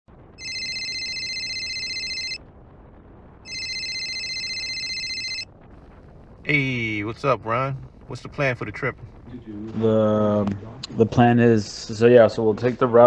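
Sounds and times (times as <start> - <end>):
telephone ringing: 0.4 - 2.4, 3.5 - 5.5.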